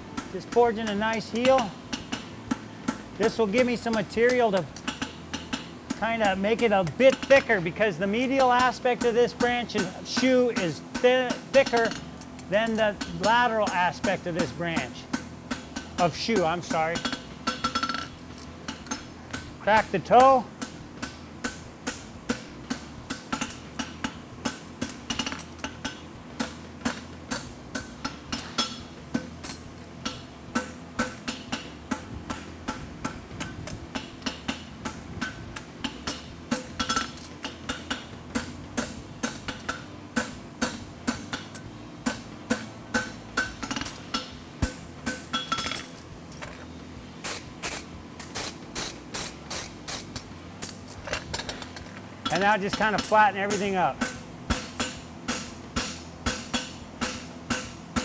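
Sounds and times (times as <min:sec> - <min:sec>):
hammer striking steel on anvil: 0:00.2 - 0:07.6, 0:33.9 - 0:45.9, 0:52.2 - 0:58.0.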